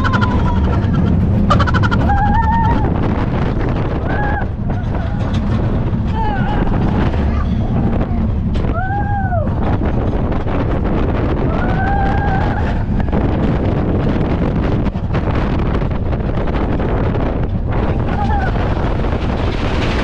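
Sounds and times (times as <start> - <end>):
riders screaming: 0.0 - 3.0, 11.4 - 13.0, 18.0 - 18.9
low rumble of ride: 0.0 - 20.0
wind rushing over microphone: 0.0 - 20.0.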